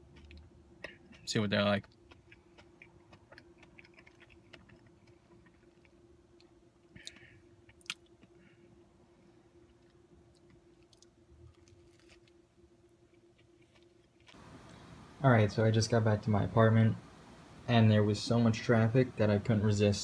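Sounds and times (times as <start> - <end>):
chewing food: 0.0 - 8.5, 9.6 - 12.4, 13.0 - 15.0
biting into food: 1.8 - 6.0, 10.4 - 12.4.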